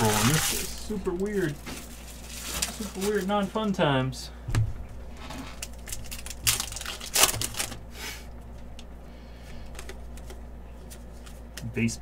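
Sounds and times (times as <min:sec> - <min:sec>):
foil wrapper crinkling and tearing: 0:00.0 - 0:03.6, 0:05.4 - 0:07.8.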